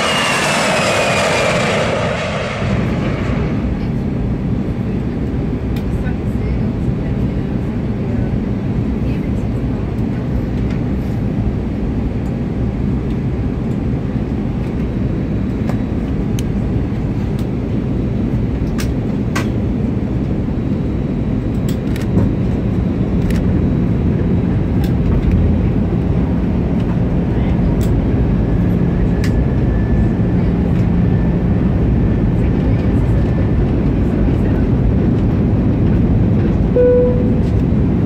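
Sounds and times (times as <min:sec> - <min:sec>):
airflow along fuselage: 0:00.0 - 0:04.7
airplane cabin engine hum: 0:00.0 - 0:38.0.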